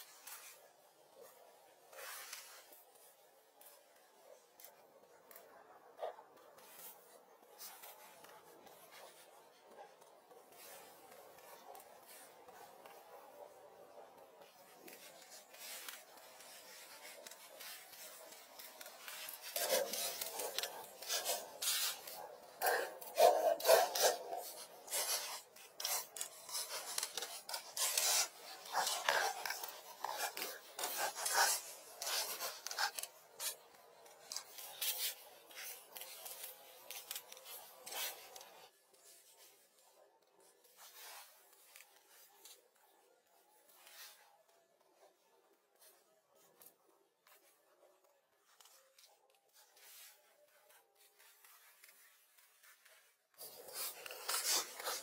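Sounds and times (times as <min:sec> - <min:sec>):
crackly rubbing strokes: 0:00.0 - 0:55.0
leaves rustling and scraping: 0:14.4 - 0:39.4.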